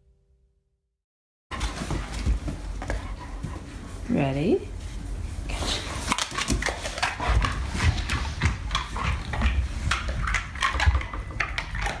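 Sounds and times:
dog claws clicking on hard floor: 0:06.0 - 0:12.0.

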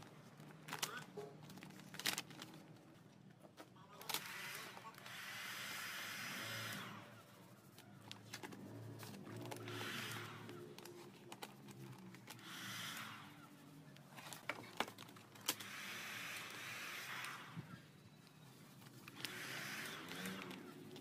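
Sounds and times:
vinyl film crinkling and clicking: 0:00.0 - 0:04.3, 0:07.5 - 0:09.7, 0:10.6 - 0:12.4, 0:13.8 - 0:15.6.

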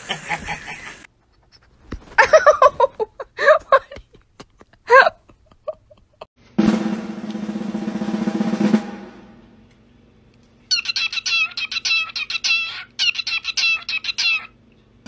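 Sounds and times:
cockatiel chirping: 0:10.7 - 0:14.6.

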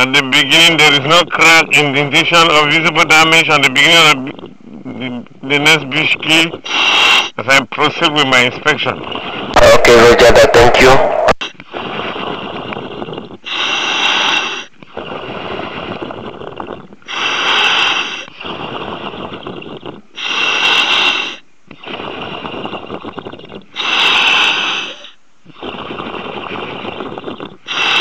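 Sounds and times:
diver breathing through apparatus: 0:06.6 - 0:07.4, 0:11.5 - 0:28.0
hissing rush of breath: 0:06.6 - 0:07.4, 0:11.7 - 0:28.0.

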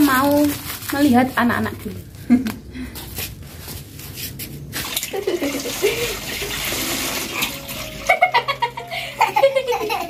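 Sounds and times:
water pouring into a pool: 0:04.8 - 0:08.1
children splashing: 0:04.8 - 0:08.4.

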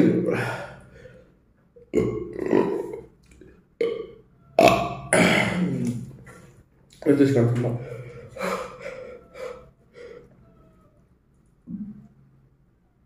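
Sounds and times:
man's burp-like vocal noises: 0:01.9 - 0:03.2, 0:03.8 - 0:06.2.

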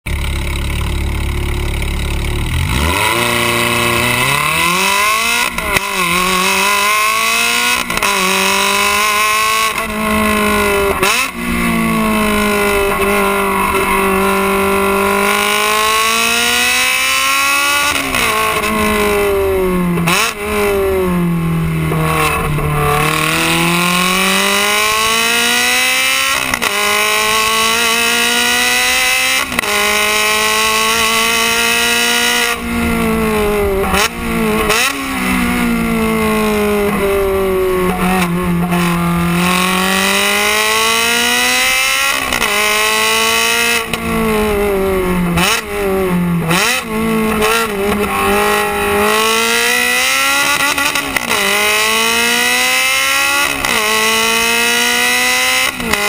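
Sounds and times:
car exhaust revving through gears: 0:00.0 - 0:56.0.

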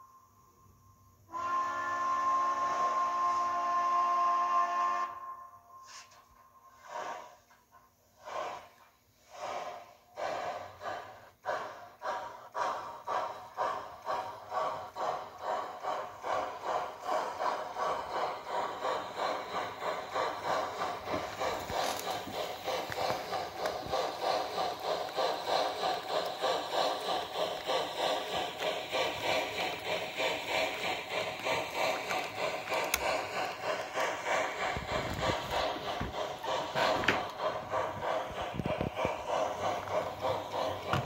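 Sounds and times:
steam locomotive chuffing from speaker: 0:00.0 - 0:41.0.

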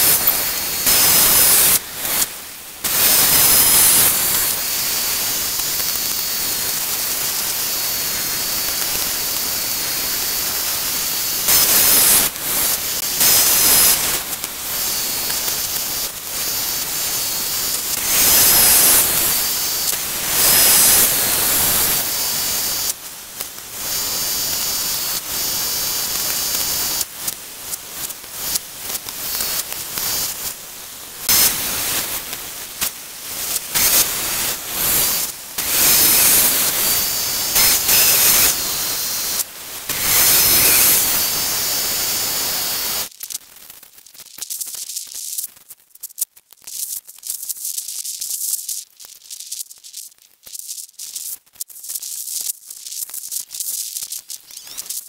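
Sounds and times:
band sawmill cutting log: 0:33.7 - 0:41.7.

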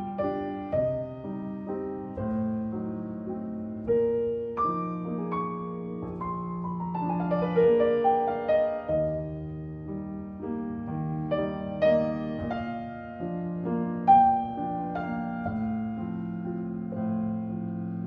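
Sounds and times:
slow piano music: 0:00.0 - 0:18.0.

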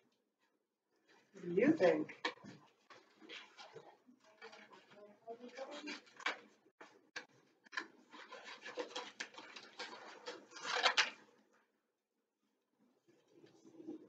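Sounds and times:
paper crinkling and rustling: 0:01.0 - 0:11.4.

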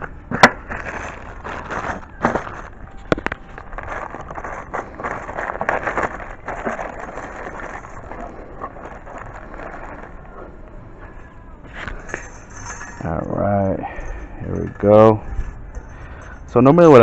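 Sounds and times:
plastic bag crinkling: 0:00.4 - 0:10.6.

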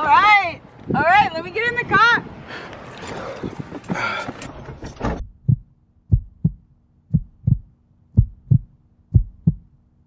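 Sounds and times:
heartbeat thumps: 0:05.1 - 0:09.8.

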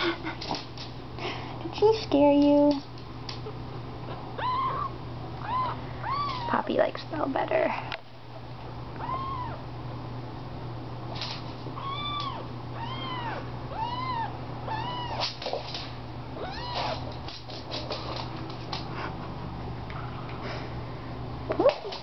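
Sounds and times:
kitten meowing: 0:04.4 - 0:06.5, 0:09.0 - 0:09.6, 0:11.8 - 0:15.4, 0:16.4 - 0:17.0.

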